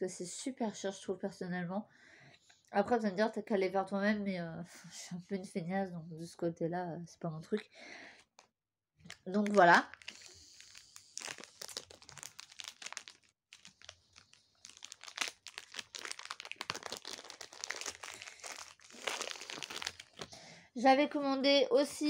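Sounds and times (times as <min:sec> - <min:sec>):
plastic packaging crinkling: 0:09.1 - 0:20.4.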